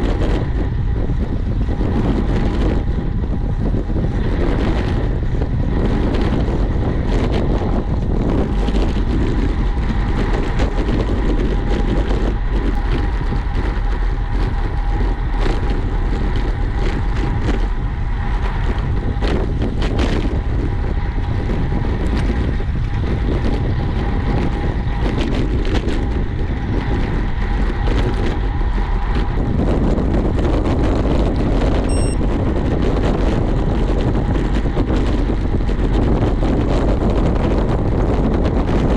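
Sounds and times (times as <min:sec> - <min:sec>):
wind rushing over microphone: 0:00.0 - 0:38.9
faint steady whine: 0:31.8 - 0:32.6.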